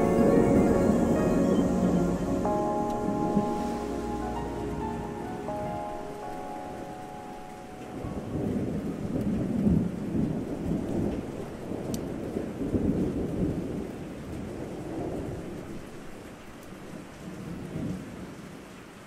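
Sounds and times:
held notes of music: 0.0s - 9.2s
thunder rumbling: 0.0s - 13.8s
steady rain: 0.0s - 19.0s.

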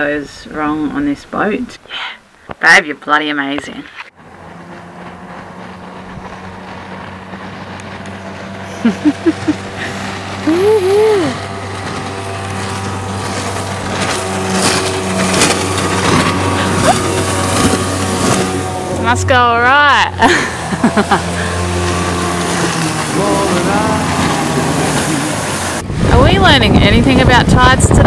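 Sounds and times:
outboard motor running: 4.1s - 28.0s
person calling out: 10.4s - 11.5s, 16.6s - 17.2s, 23.1s - 25.4s.

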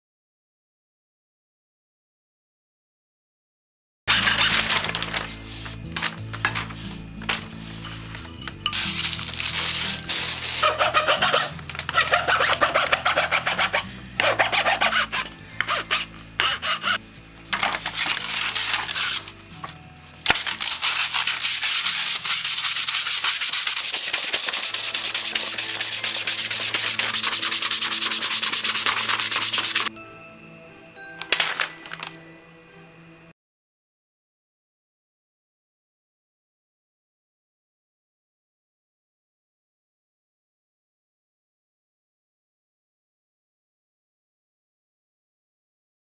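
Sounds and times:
sandpaper rubbing on wood: 4.1s - 5.8s, 8.8s - 17.0s, 17.9s - 19.3s, 20.3s - 29.9s.

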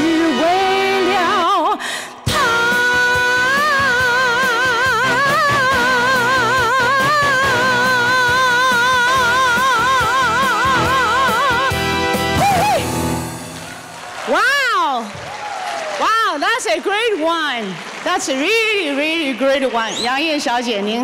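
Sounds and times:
woman singing with vibrato: 0.0s - 13.2s
band accompaniment: 2.3s - 14.5s.

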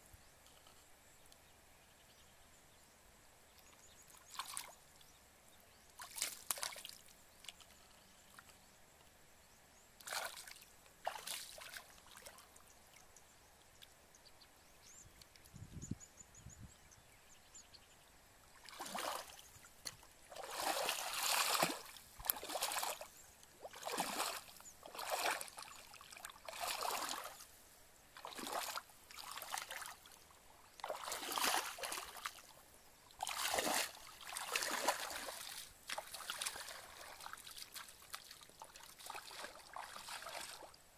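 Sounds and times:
muddy water sloshing: 6.0s - 7.6s, 10.0s - 12.5s, 18.6s - 27.5s, 28.2s - 32.5s, 33.1s - 40.8s
wading steps through water: 6.0s - 8.5s, 10.0s - 12.6s, 18.6s - 27.6s, 28.2s - 40.8s.

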